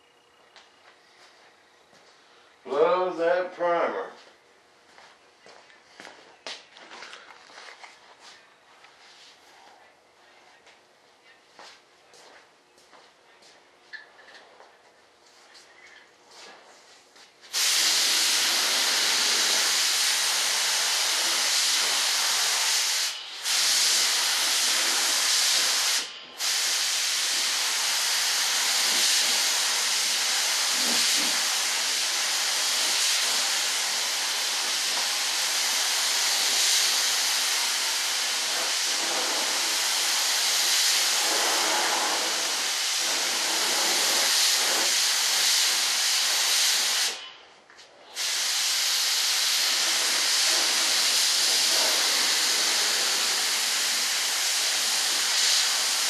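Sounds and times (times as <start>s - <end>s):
spray gun hissing: 17.5s - 47.3s, 48.1s - 56.0s.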